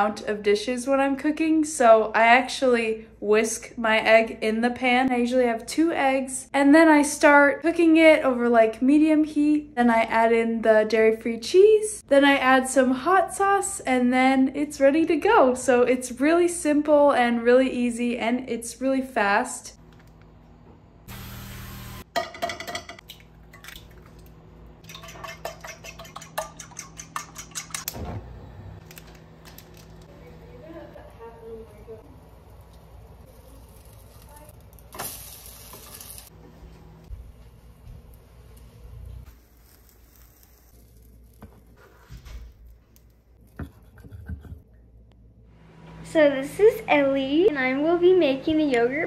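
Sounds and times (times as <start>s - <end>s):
cooking spray hissing: 21.1s - 22.1s, 32.4s - 36.3s, 39.2s - 41.1s
fork whisking eggs in pan: 24.9s - 27.9s.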